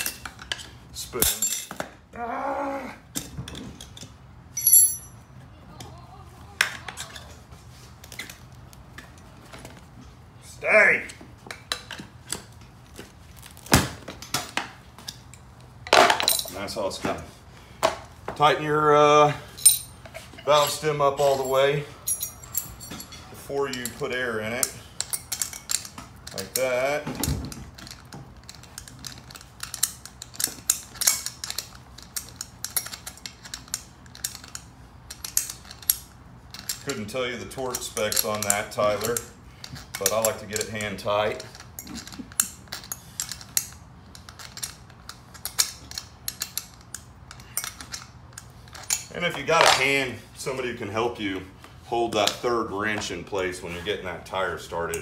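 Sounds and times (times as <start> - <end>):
metal tools clinking on rim: 0.0 - 1.9, 3.8 - 5.3, 15.1 - 16.8, 19.3 - 26.9, 27.8 - 50.1.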